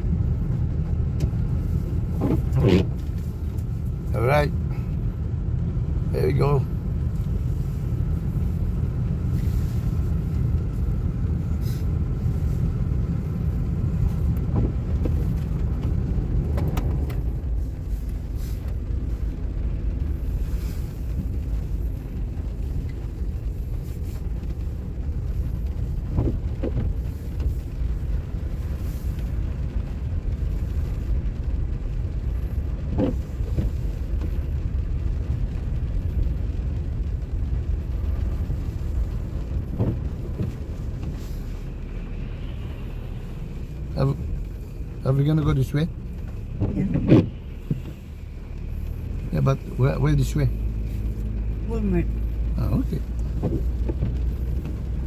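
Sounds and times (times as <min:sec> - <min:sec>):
car road and engine rumble: 0:00.0 - 0:55.0.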